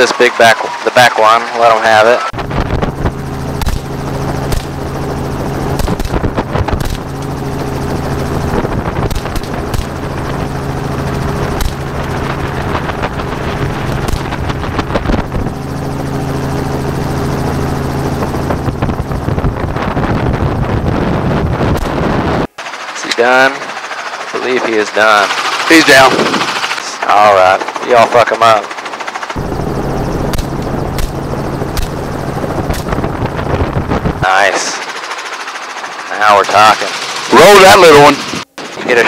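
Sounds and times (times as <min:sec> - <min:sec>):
helicopter rotor and engine drone: 0:00.0 - 0:39.0
wind rushing on microphone: 0:02.3 - 0:22.5, 0:24.4 - 0:27.7, 0:29.4 - 0:35.0, 0:36.4 - 0:39.0
sharp cracks: 0:03.6 - 0:03.9, 0:04.5 - 0:04.8, 0:09.1 - 0:10.0, 0:11.6 - 0:11.8, 0:30.3 - 0:32.0.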